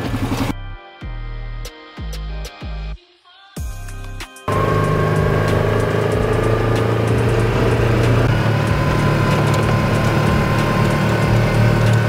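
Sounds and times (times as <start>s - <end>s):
vehicle engine running: 0.0s - 0.5s, 4.5s - 12.0s.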